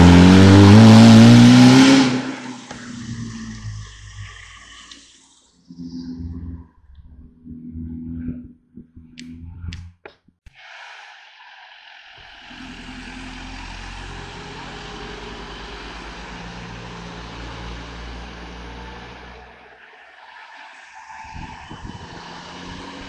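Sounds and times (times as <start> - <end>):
race car engine running hard: 0.0 - 3.6.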